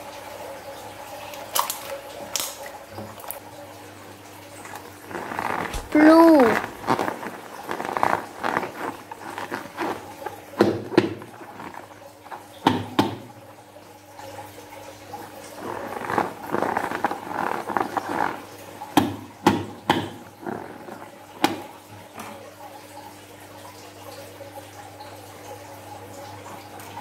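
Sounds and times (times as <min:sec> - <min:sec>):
rubber balloon rustling: 0:05.0 - 0:12.5, 0:15.6 - 0:18.5, 0:20.1 - 0:21.7.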